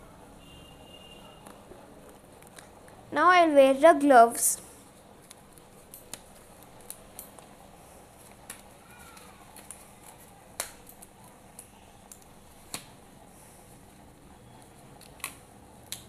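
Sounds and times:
rubber gloves snapping and rustling: 0:05.2 - 0:07.6, 0:08.2 - 0:13.0, 0:14.9 - 0:16.0.

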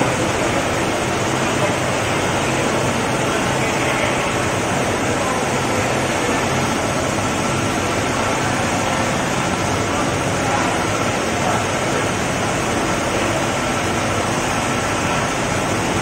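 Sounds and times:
rushing market din: 0:00.0 - 0:16.0.

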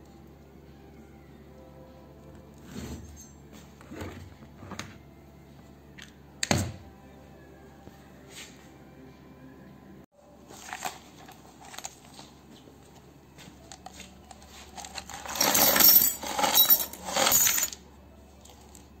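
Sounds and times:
metal parts clattering into bucket: 0:10.5 - 0:12.2, 0:14.6 - 0:17.8.

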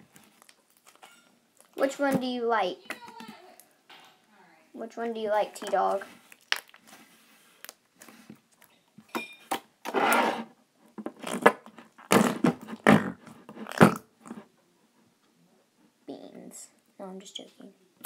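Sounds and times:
slime squelching and popping: 0:06.2 - 0:06.9
slime clicks and crackles: 0:06.3 - 0:06.9.

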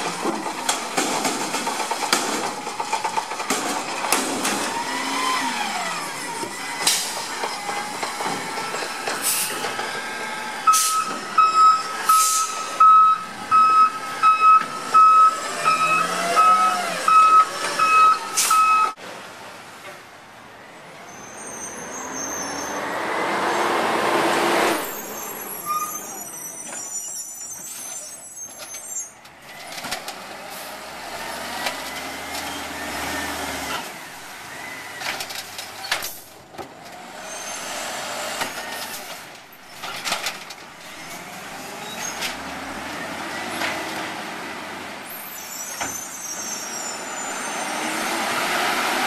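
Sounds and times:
truck noise: 0:00.0 - 0:49.0
air brakes hissing: 0:09.2 - 0:09.7, 0:10.7 - 0:11.2, 0:12.0 - 0:12.8, 0:18.3 - 0:18.7
truck reversing beeper: 0:10.5 - 0:19.0.

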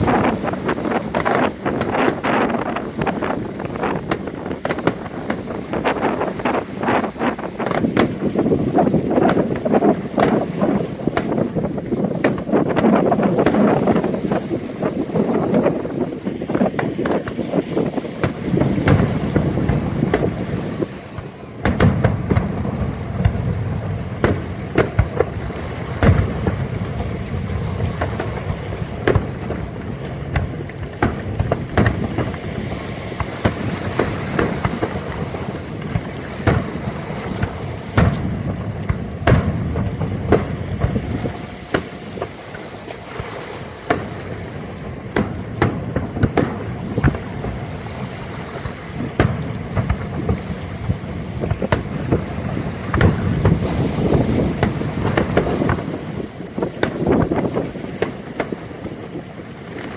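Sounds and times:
fireworks bangs and crackles: 0:00.0 - 0:59.9
wind on microphone: 0:00.0 - 0:59.9.

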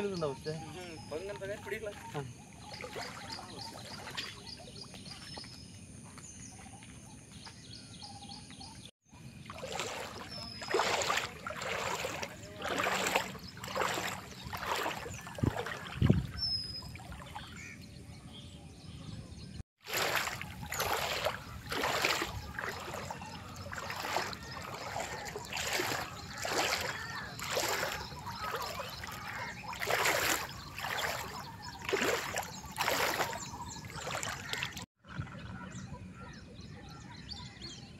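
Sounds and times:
footsteps splashing through water: 0:01.5 - 0:05.6, 0:09.5 - 0:17.5, 0:19.8 - 0:35.4
bird chirping: 0:06.4 - 0:34.8.

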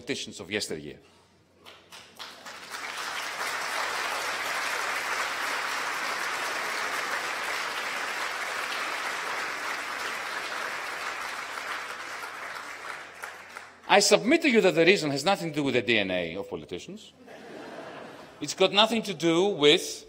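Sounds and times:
audience applauding: 0:01.6 - 0:13.8.

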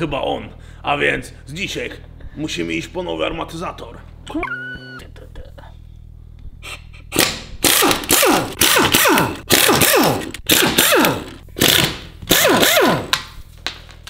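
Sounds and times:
pneumatic impact wrench bursts: 0:07.1 - 0:13.1.

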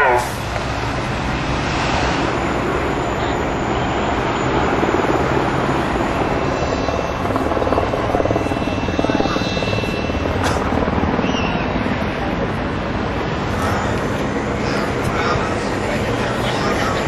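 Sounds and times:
aircraft rumbling overhead: 0:00.0 - 0:17.0.

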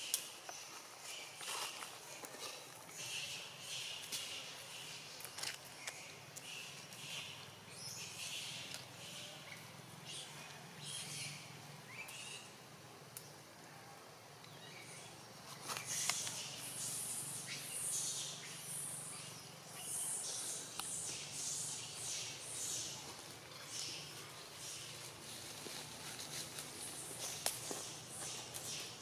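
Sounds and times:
dry leaves rustling: 0:22.5 - 0:29.0.

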